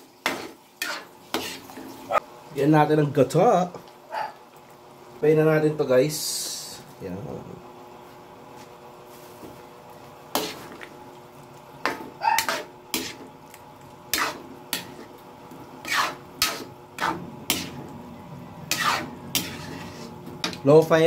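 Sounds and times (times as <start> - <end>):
metal spatula scraping wok: 0.2 - 2.0, 10.3 - 10.8, 11.8 - 13.3, 14.1 - 15.1, 15.8 - 17.9, 18.6 - 20.6.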